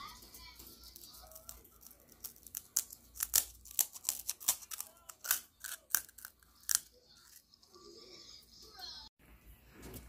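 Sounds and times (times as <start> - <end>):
crisp fried shell cracking: 1.0 - 7.4.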